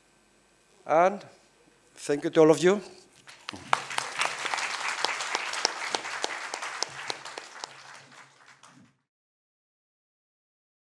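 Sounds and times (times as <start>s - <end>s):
audience applauding: 3.2s - 9.0s.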